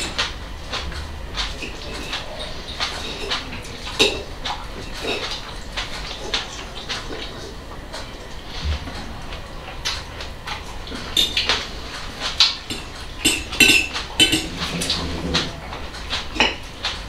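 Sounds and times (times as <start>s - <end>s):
forks clinking on ceramic plates: 12.7s - 14.6s.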